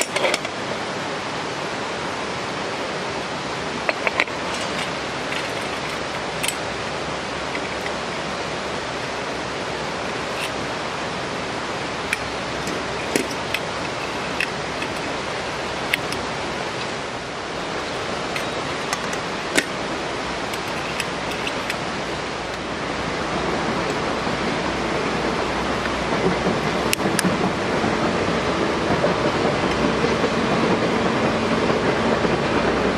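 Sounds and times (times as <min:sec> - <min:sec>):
rushing background noise: 0:00.0 - 0:32.9
metallic clicks of stove parts: 0:03.9 - 0:06.6, 0:15.9 - 0:16.2, 0:20.5 - 0:21.8.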